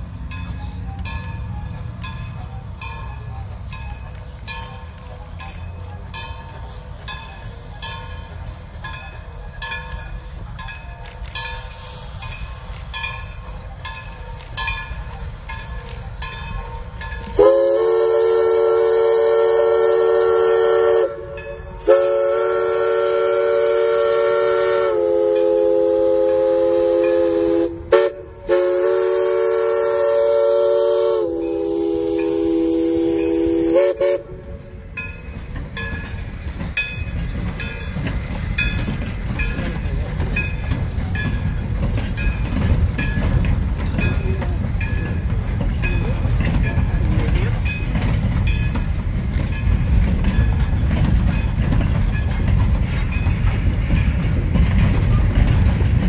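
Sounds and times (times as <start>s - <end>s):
train rumbling past: 0.0s - 56.0s
locomotive bell ringing: 0.2s - 22.3s, 31.1s - 56.0s
steam whistle blasts: 17.3s - 34.8s.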